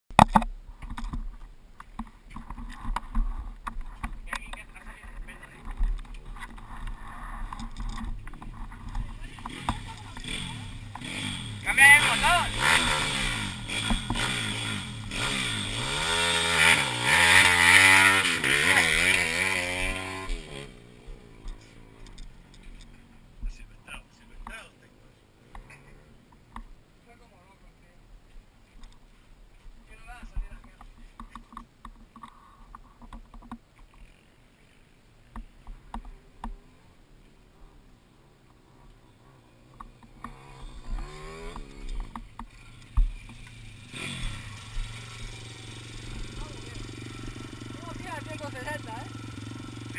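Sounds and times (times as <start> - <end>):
faint background noise: 0.1 - 49.9
pit bike engine revving: 6.2 - 23.1, 38.6 - 49.9
sharp knocks and clicks: 30.6 - 33.9, 39.8 - 43.6.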